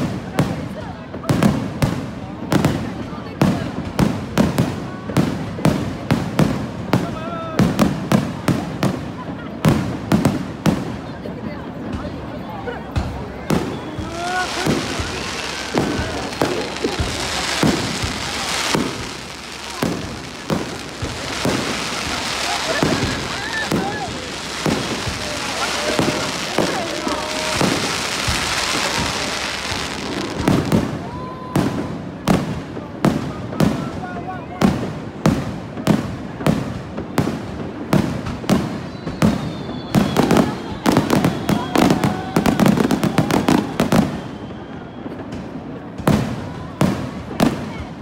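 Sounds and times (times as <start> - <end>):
crackling hiss: 13.3 - 31.1
firework shells bursting: 14.0 - 30.8.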